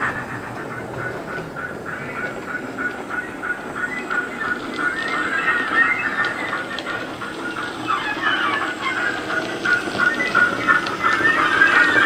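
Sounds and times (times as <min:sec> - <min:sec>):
model train steam sounds: 0:00.0 - 0:12.0
faint clicks: 0:00.6 - 0:07.8.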